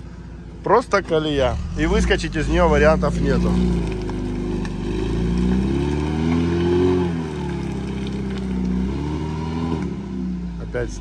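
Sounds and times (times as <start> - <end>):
off-road engine revving: 0.9 - 11.0
axles dragging on ground: 1.6 - 8.9.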